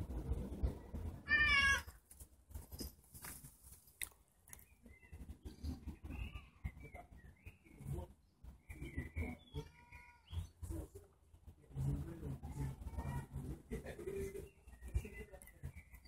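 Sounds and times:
cat meowing: 1.2s - 1.9s.

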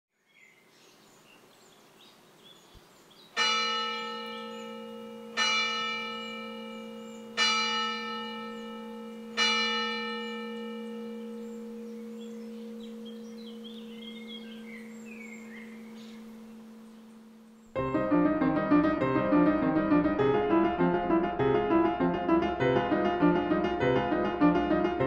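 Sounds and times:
church bell tolling: 3.4s - 25.0s
high chirps: 10.3s - 20.0s.

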